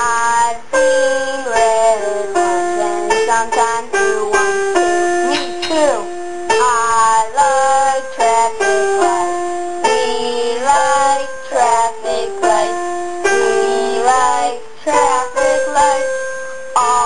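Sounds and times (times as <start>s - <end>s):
plucked strings: 5.3s - 6.2s
high thin singing voice: 5.3s - 16.1s.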